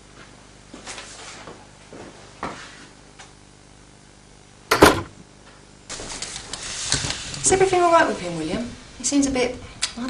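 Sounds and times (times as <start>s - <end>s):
door knocks and clicks: 4.7s - 5.1s
door shutting with double knock: 4.7s - 5.1s.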